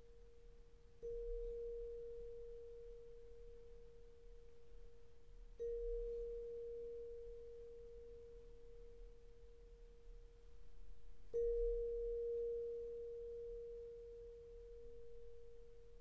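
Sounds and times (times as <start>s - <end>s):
pure ringing tone: 1.0s - 4.5s, 5.6s - 10.2s, 11.4s - 16.0s.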